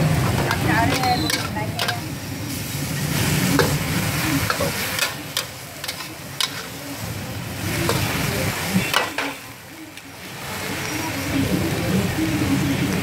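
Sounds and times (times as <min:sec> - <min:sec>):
frying sizzle: 0:00.0 - 0:13.0
metal spatula scraping wok: 0:00.2 - 0:09.5.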